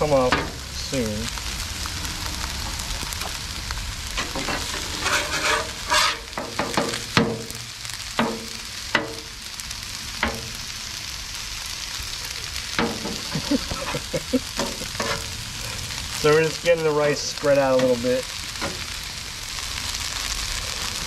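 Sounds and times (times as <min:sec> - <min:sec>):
food sizzling on griddle: 0:00.0 - 0:21.0
metal scraper scraping griddle: 0:04.2 - 0:07.5, 0:12.8 - 0:15.3.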